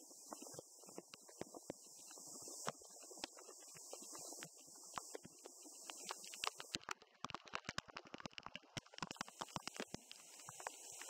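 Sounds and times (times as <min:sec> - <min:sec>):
muffled rushing waterfall hiss: 0:00.0 - 0:06.8, 0:09.2 - 0:11.0
water drops crackling on microphone: 0:02.6 - 0:11.0.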